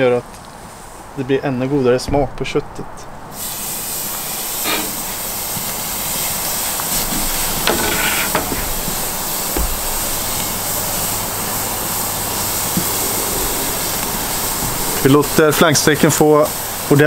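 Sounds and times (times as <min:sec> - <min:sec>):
low thump: 0:02.0 - 0:02.6
steak sizzling on grill: 0:03.3 - 0:17.0.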